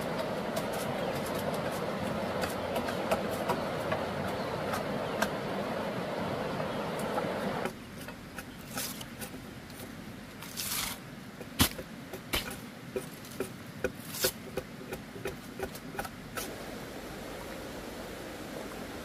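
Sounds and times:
hiss of rain or water: 0:00.0 - 0:07.7, 0:16.3 - 0:19.0.

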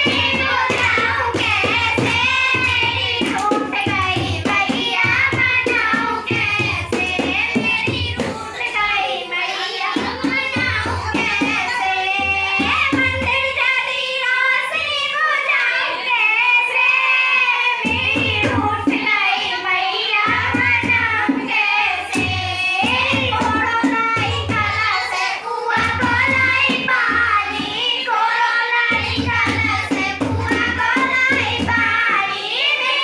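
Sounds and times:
dholak drum beating: 0:00.0 - 0:15.2, 0:16.6 - 0:33.0
girls singing into a microphone: 0:00.0 - 0:33.0
hands clapping: 0:02.6 - 0:03.7.

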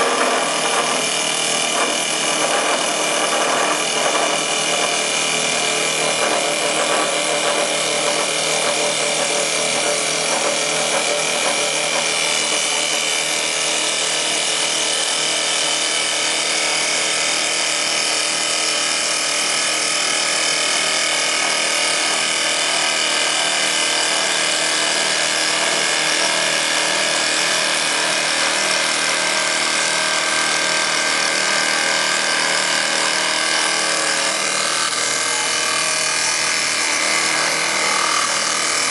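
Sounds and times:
spindle whine: 0:00.0 - 0:13.8
cutter shaping wood: 0:00.0 - 0:38.9.

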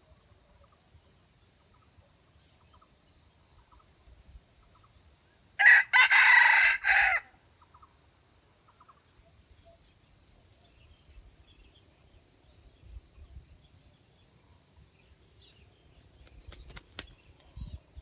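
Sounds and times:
rooster crowing: 0:05.6 - 0:07.4.

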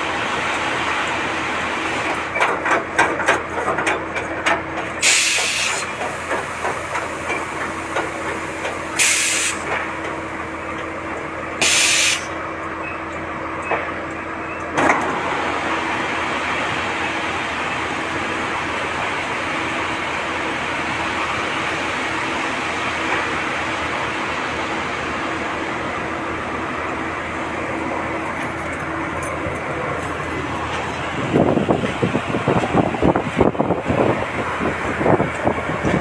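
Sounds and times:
compressed air hisses: 0:05.0 - 0:05.9, 0:09.0 - 0:09.6, 0:11.6 - 0:12.3.

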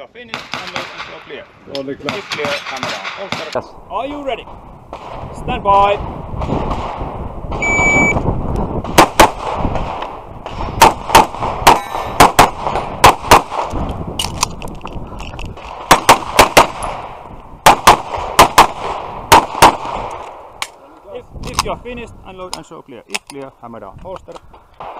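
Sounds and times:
shot timer beep: 0:07.6 - 0:08.2
pistol shots: 0:08.8 - 0:13.8, 0:15.6 - 0:20.4.

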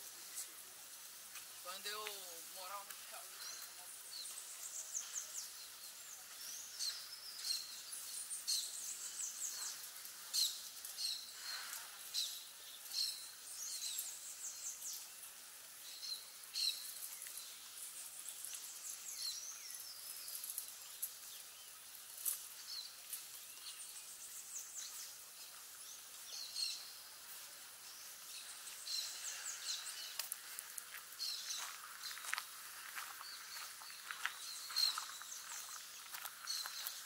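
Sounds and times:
birds chirping: 0:00.0 - 0:37.0
faint steady hiss: 0:00.0 - 0:37.0.

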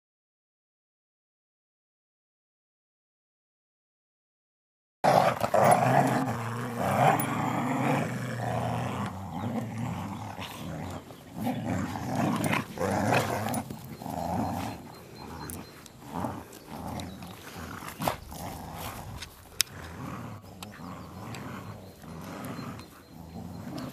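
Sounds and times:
dogs growling in play: 0:05.0 - 0:23.9.

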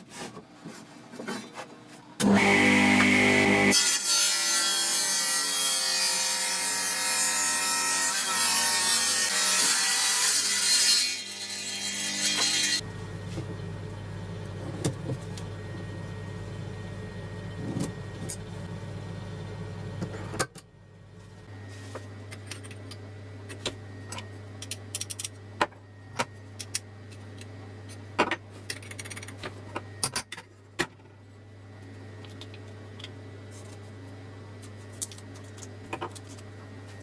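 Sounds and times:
steady low hum: 0:12.8 - 0:37.0.

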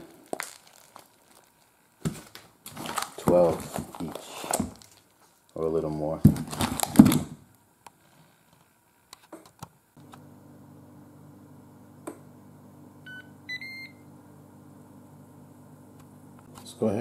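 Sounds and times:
low steady hum: 0:09.8 - 0:17.0
pressure cooker beeping: 0:13.0 - 0:14.1.

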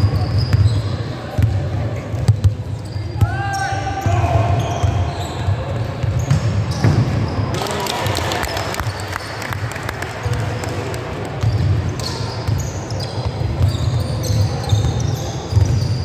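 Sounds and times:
trainers squeaking on floor: 0:00.0 - 0:01.2, 0:02.4 - 0:07.5, 0:11.4 - 0:16.0
basketball bouncing: 0:05.8 - 0:07.4.

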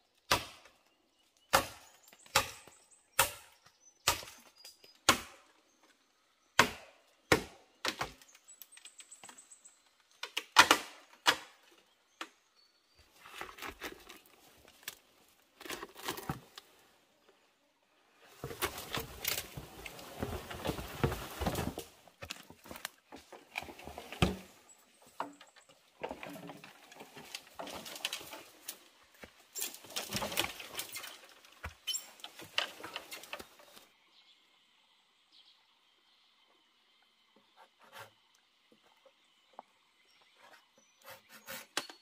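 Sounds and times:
blade chopping bamboo: 0:00.3 - 0:00.6, 0:01.5 - 0:04.4, 0:05.0 - 0:05.4, 0:06.6 - 0:08.2
bamboo and leaves rustling: 0:07.8 - 0:34.0.

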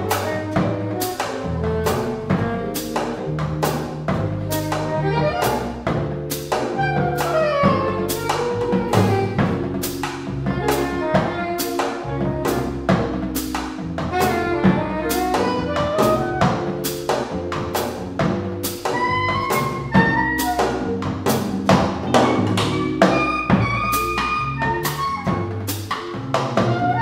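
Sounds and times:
keyboard melody: 0:00.0 - 0:27.0
upright bass notes: 0:00.0 - 0:27.0.

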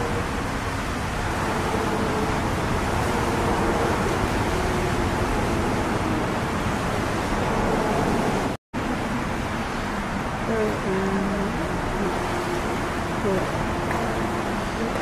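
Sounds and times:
faint wavering hum: 0:00.0 - 0:15.0
rain falling on flooded street: 0:08.0 - 0:15.0.

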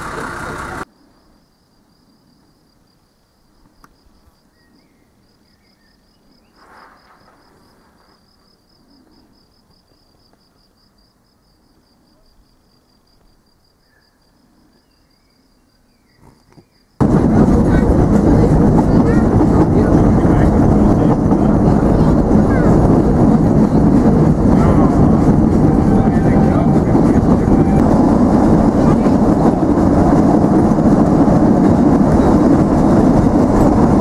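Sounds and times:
insect chirping: 0:00.8 - 0:17.0
faint bird chirps: 0:04.4 - 0:08.1, 0:13.7 - 0:17.0
rustle: 0:06.4 - 0:09.0.

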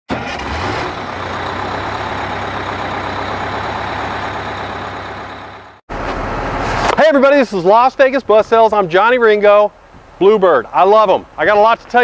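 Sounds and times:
heavy vehicle engine running: 0:00.1 - 0:07.0.

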